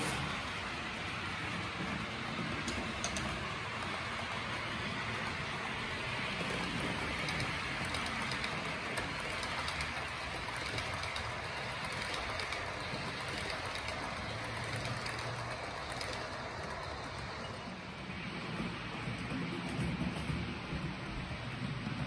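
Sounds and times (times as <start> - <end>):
model train whirr and rattle: 0.0 - 22.0.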